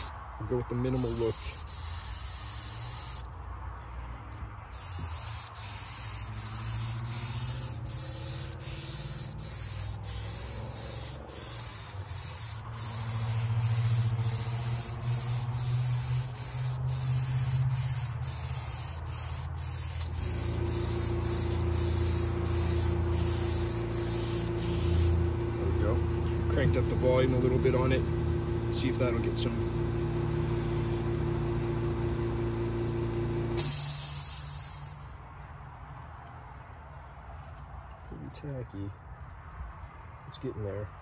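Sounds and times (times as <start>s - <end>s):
spray gun hissing: 0.9s - 3.3s, 4.7s - 25.2s, 33.6s - 35.2s
low motor hum: 19.9s - 33.6s.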